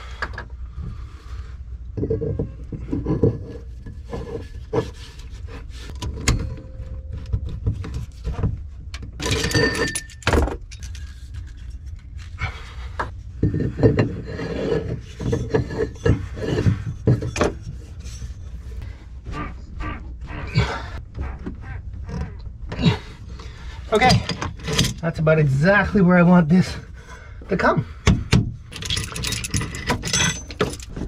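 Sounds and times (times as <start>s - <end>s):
steady low rumble: 0.0s - 9.2s, 10.0s - 28.8s
metal fittings clinking and scraping: 9.2s - 12.3s, 13.4s - 18.8s, 28.6s - 31.0s.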